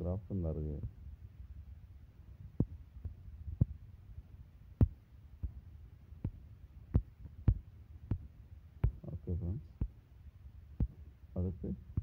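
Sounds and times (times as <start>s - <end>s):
faint low hum: 0.0s - 12.0s
soft taps and knocks: 2.6s - 3.8s, 6.2s - 9.1s, 10.8s - 11.1s.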